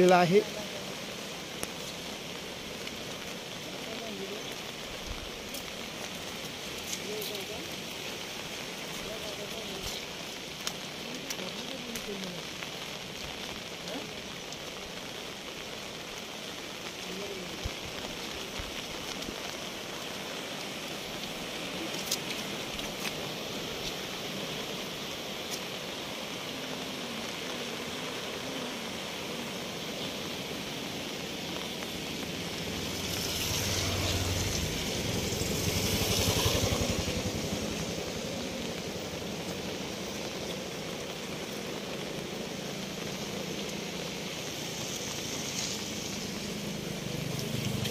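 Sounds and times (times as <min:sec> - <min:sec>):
floodwater rushing: 0:00.0 - 0:47.9
rain hissing: 0:00.0 - 0:47.9.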